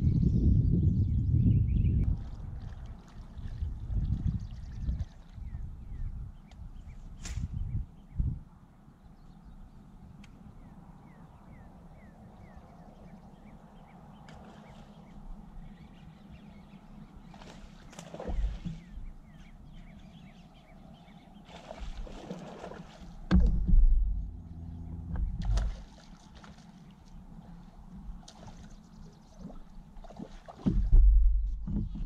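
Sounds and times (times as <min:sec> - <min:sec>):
water slapping against boat hull: 0:17.4 - 0:19.1, 0:21.5 - 0:24.2, 0:25.1 - 0:27.2, 0:29.4 - 0:32.0
heavy low bumps: 0:23.2 - 0:25.8, 0:30.7 - 0:32.0.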